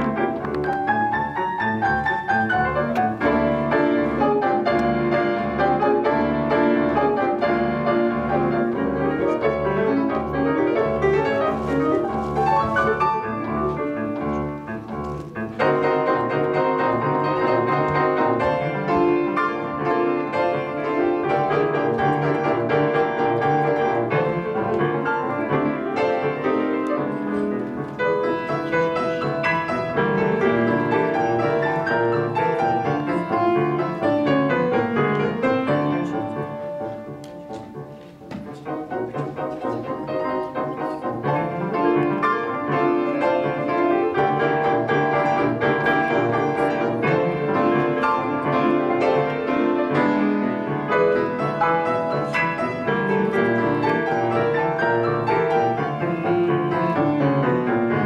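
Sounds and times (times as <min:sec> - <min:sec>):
piano duet playing fast: 0:00.0 - 0:58.0.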